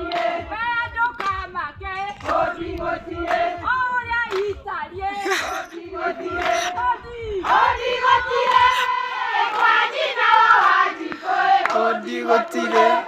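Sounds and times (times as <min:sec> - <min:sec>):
crowd singing and chanting: 0:00.0 - 0:13.0
hand clapping: 0:00.1 - 0:01.5, 0:02.1 - 0:03.6, 0:04.2 - 0:05.6, 0:06.4 - 0:06.8, 0:08.4 - 0:08.9, 0:09.5 - 0:11.9.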